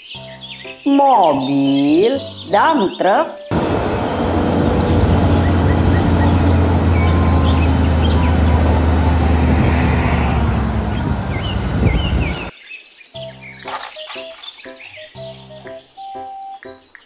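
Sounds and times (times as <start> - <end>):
music: 0.0 - 3.5, 13.2 - 17.0
birds chirping: 0.0 - 17.0
diesel truck engine humming: 3.5 - 12.5.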